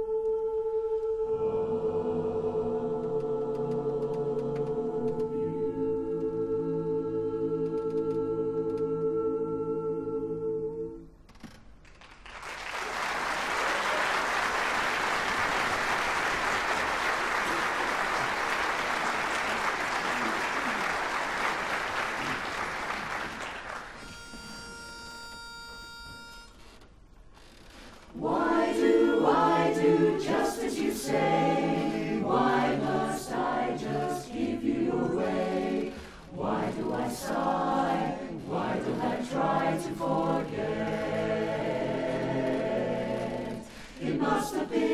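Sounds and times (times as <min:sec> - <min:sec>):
a cappella chorus singing: 0:00.0 - 0:11.2, 0:28.1 - 0:44.9
audience applause: 0:11.9 - 0:24.0
pitch pipe note: 0:24.0 - 0:26.6.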